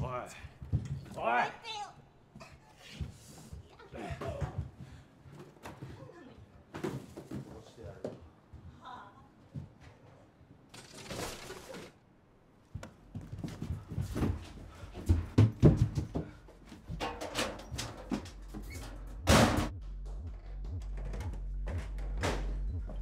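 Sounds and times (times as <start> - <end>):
knocks thumps and scuffs: 12.8 - 23.0.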